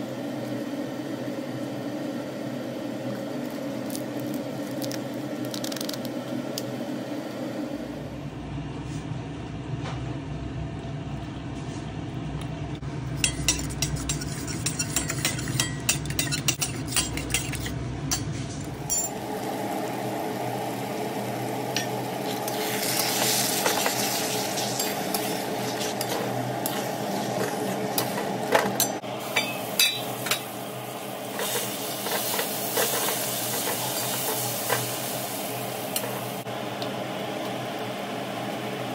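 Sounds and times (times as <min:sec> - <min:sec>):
metal spatula scraping a pan: 0:13.3 - 0:17.7
onions sizzling in oil: 0:19.1 - 0:28.5, 0:29.2 - 0:36.5.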